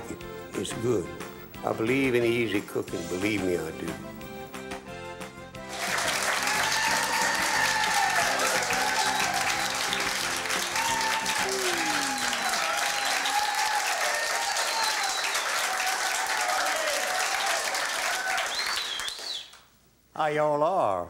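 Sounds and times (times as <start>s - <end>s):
tuneful music: 0.0s - 12.8s
audience applauding: 5.6s - 19.6s.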